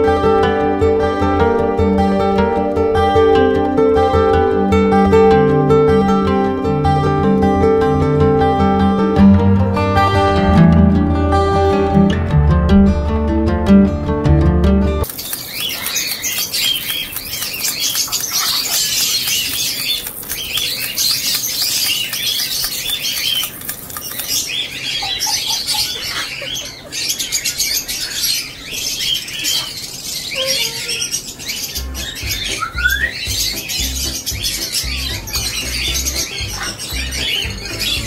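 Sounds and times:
parrots chirping and squeaking: 15.0s - 38.0s
low musical beat: 31.8s - 38.0s.

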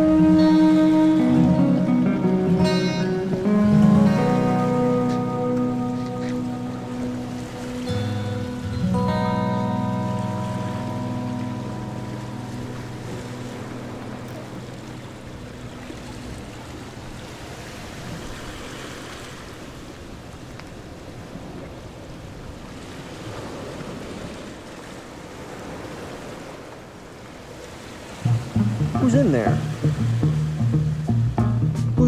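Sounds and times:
background music: 0.0s - 16.8s, 28.3s - 32.0s.

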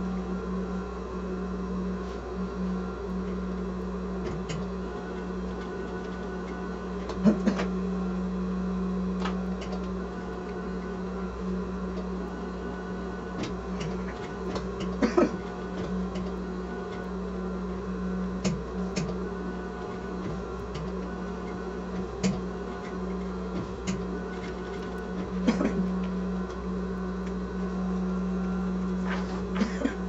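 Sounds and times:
sewing machine running: 18.4s - 27.4s.

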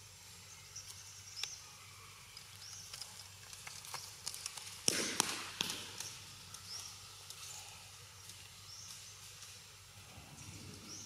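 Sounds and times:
monkeys scuffling over dry leaves: 2.2s - 11.0s.

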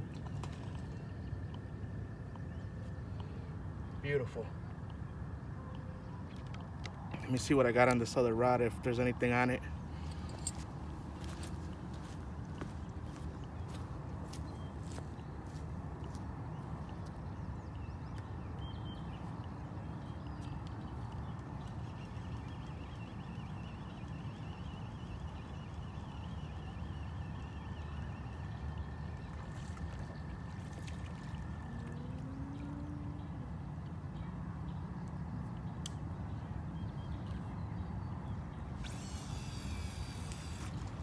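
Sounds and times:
low outdoor rumble: 0.0s - 41.0s
fishing reel whirring rattle: 38.8s - 41.0s.

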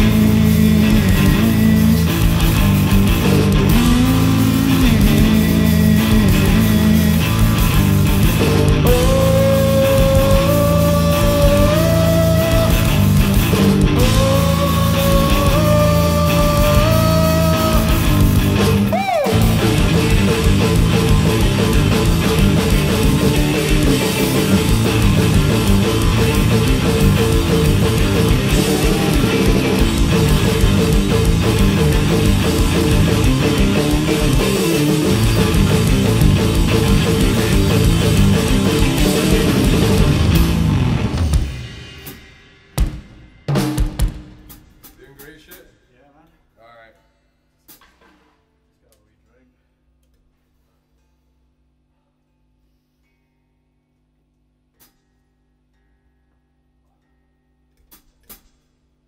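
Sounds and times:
electric guitar riff: 0.0s - 42.0s
drum kit: 0.0s - 46.2s, 47.6s - 49.0s, 57.8s - 58.8s.

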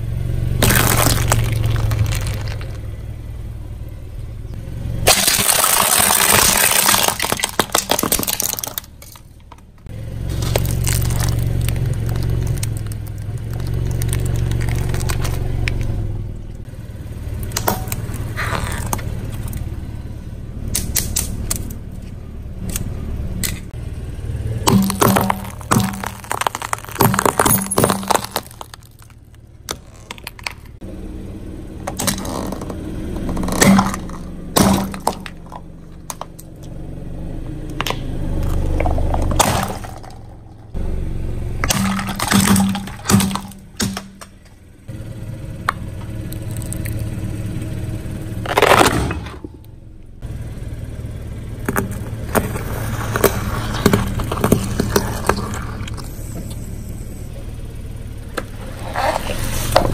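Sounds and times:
car engine humming: 0.0s - 59.9s
plastic cracking under tyre: 0.6s - 3.0s, 5.1s - 15.9s, 17.4s - 19.6s, 24.7s - 30.8s, 31.8s - 36.5s, 37.8s - 40.4s, 41.6s - 44.6s, 48.4s - 49.6s, 51.6s - 56.6s.

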